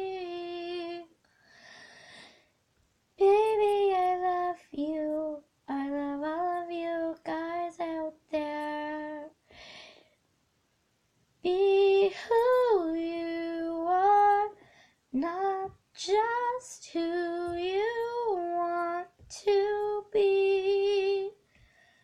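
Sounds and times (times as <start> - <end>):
girl singing unaccompanied: 0.0 - 1.2, 3.2 - 9.4, 11.4 - 21.4.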